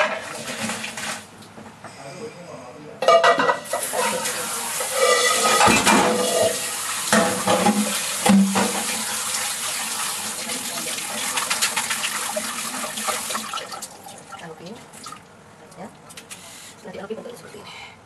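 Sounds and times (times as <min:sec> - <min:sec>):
water splashing into a sink: 0:00.0 - 0:01.3, 0:03.7 - 0:15.3
pot knocking against a metal sink: 0:05.2 - 0:09.1.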